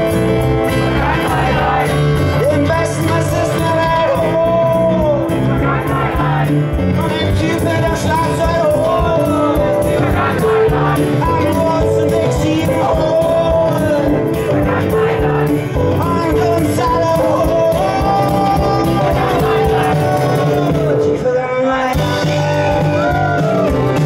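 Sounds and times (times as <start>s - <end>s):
man singing: 0.0s - 23.6s
live band with keyboard and drums: 0.0s - 24.0s.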